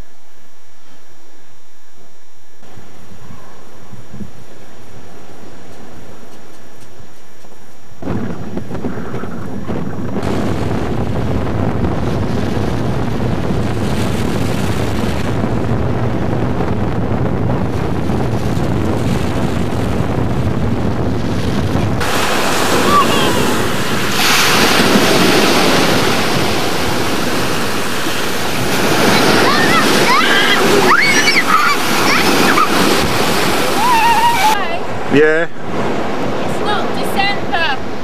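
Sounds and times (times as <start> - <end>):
wind buffeting microphone: 2.6 - 38.0
waves breaking on beach: 9.4 - 38.0.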